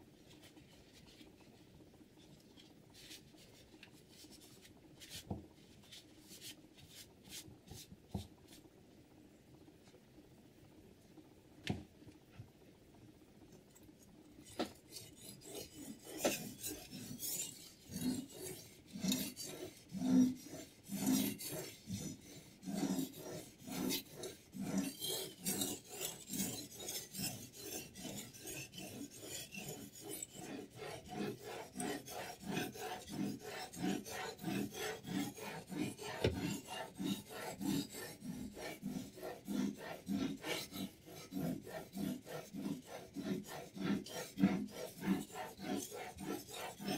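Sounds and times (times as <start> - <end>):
sharpening stone rasping on knife: 14.6 - 46.9.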